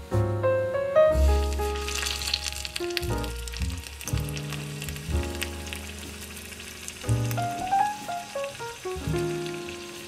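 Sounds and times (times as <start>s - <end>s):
background music with bass: 0.0s - 7.8s
oil sizzling and crackling: 1.1s - 10.0s.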